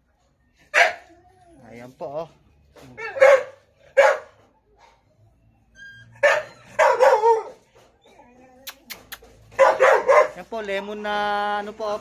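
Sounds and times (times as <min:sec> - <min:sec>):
dog barking: 0:00.7 - 0:01.1, 0:03.0 - 0:04.9, 0:06.2 - 0:07.6, 0:09.5 - 0:10.4.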